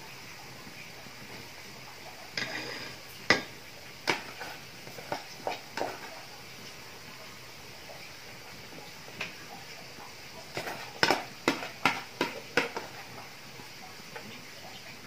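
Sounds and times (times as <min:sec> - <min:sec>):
metal spoon scraping pot: 0:02.4 - 0:06.2, 0:10.5 - 0:13.2.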